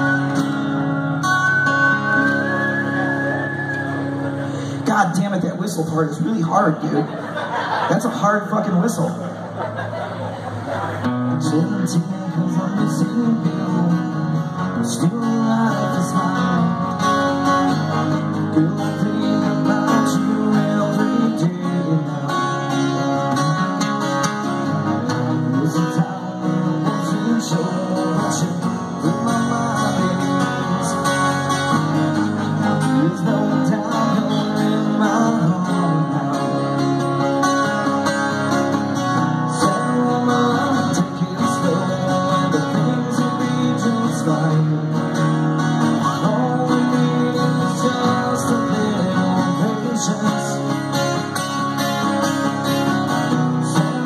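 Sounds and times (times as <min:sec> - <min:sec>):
acoustic guitars strumming: 0:00.0 - 0:54.0
person singing: 0:11.4 - 0:17.0, 0:24.8 - 0:31.8, 0:32.6 - 0:37.9, 0:39.5 - 0:45.2, 0:46.0 - 0:51.2, 0:53.4 - 0:54.0.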